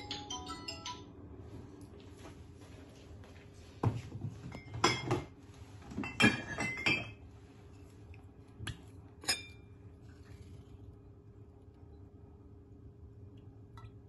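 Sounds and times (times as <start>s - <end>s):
spoon clinking against ceramic bowl: 9.2s - 9.7s.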